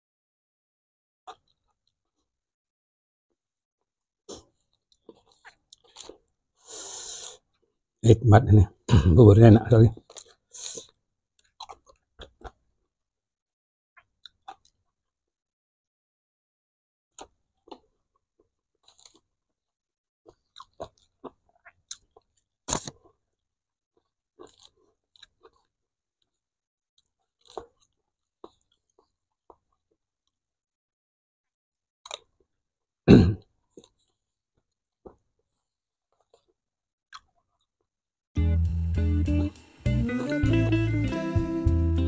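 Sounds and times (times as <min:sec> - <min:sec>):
chewing and mouth smacks: 0:04.3 - 0:06.4, 0:10.0 - 0:12.6, 0:14.0 - 0:14.8, 0:17.2 - 0:19.3, 0:20.2 - 0:23.2, 0:24.0 - 0:26.4, 0:27.0 - 0:30.4, 0:32.0 - 0:32.5, 0:36.1 - 0:37.7.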